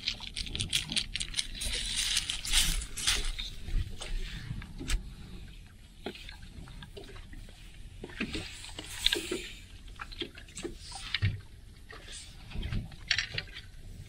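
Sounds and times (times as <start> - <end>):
wind rumbling on microphone: 0.0 - 5.6.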